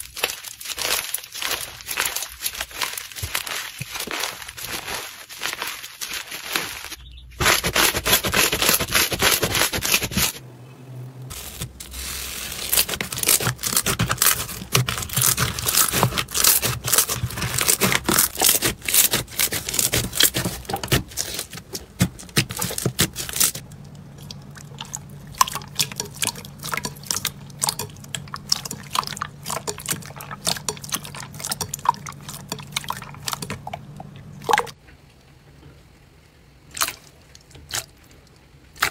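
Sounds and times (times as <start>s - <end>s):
slime squishing and popping: 0.0s - 6.8s, 12.6s - 34.8s.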